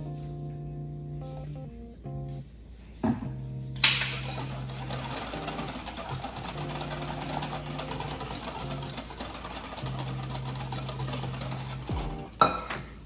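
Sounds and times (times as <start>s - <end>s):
whisk clattering in glass bowl: 4.0s - 12.5s.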